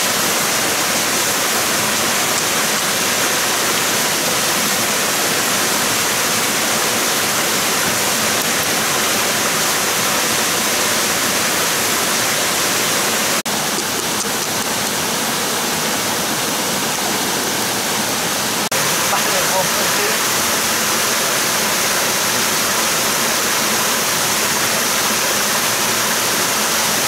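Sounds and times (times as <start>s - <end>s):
loud rushing water: 0.0s - 27.0s.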